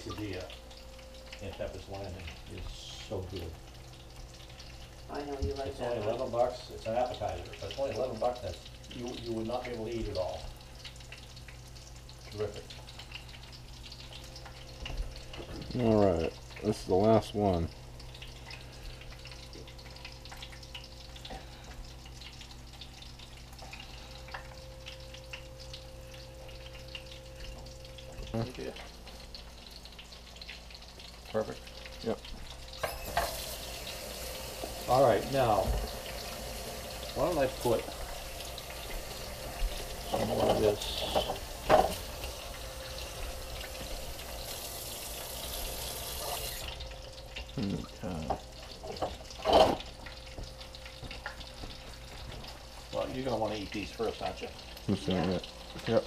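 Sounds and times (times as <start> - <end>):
fish frying in oil: 0.0 - 56.0
tap water running into sink: 1.2 - 56.0
steady hum: 17.7 - 55.8.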